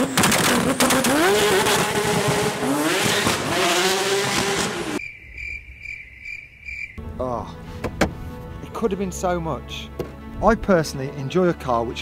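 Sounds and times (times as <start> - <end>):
car engine accelerating hard: 0.0 - 5.0.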